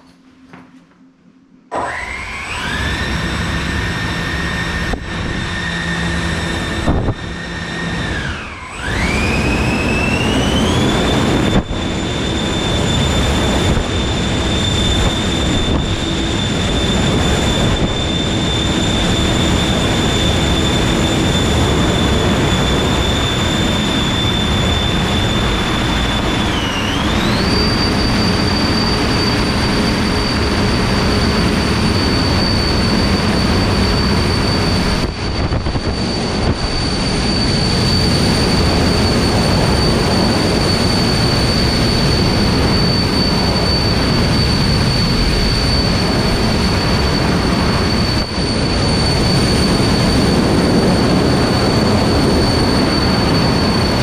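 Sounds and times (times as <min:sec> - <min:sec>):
motor whining over rushing noise: 0:01.7 - 0:54.0.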